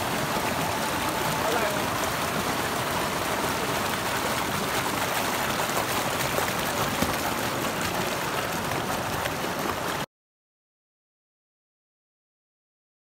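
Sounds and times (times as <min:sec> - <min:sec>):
stream rushing over rocks: 0:00.0 - 0:10.1.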